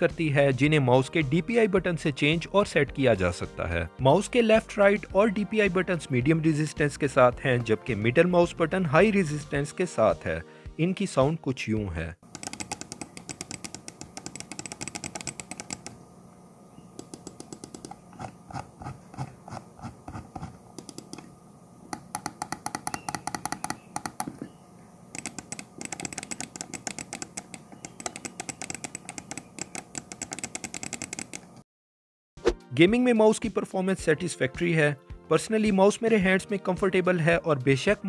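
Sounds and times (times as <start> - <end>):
mouse buttons clicking: 12.3 - 16.0, 17.0 - 18.0, 20.8 - 21.3, 22.0 - 24.6, 25.2 - 31.5.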